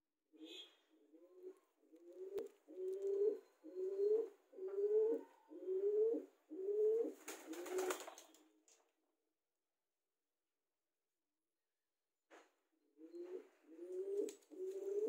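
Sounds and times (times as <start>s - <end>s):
pigeon cooing: 1.0s - 8.0s, 13.0s - 15.0s.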